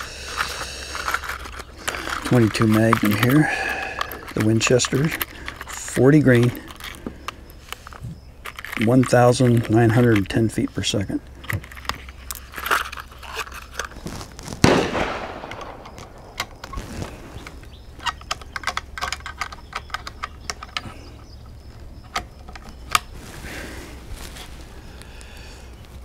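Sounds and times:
metallic clicks of rifle handling: 0.0 - 23.2
gunshot with echo: 14.6 - 16.4.

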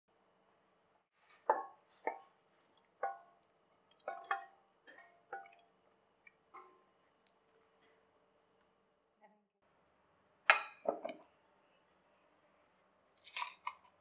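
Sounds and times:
thick gravy plopping: 1.4 - 5.6.

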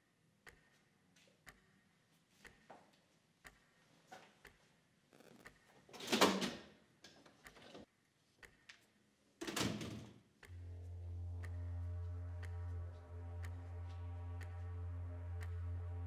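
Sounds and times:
low steady music drone: 10.4 - 16.0.

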